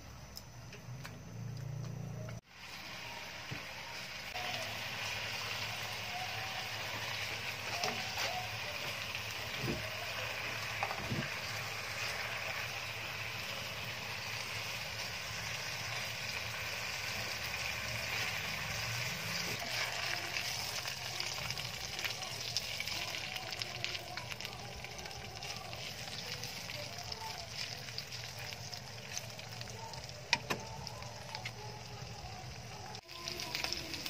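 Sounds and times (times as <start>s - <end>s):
pork sizzling in a pan: 2.4s - 34.0s.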